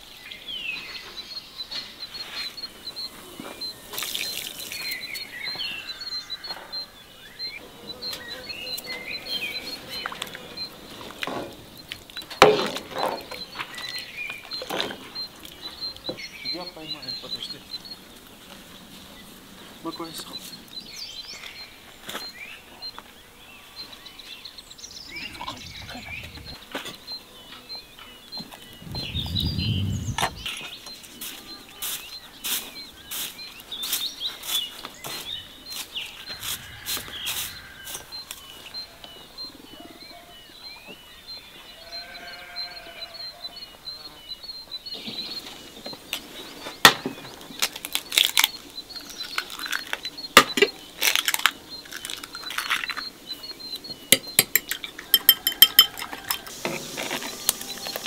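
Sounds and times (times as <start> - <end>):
small birds chirping: 0.0 - 58.0
eggshells knocking against a bowl: 54.2 - 56.2.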